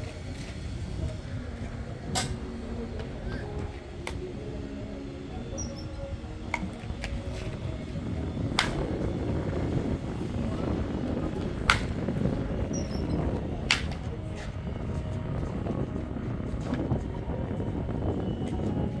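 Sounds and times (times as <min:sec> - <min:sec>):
steady low rumble: 0:00.0 - 0:19.0
bats striking baseballs: 0:08.5 - 0:09.0, 0:11.5 - 0:12.1.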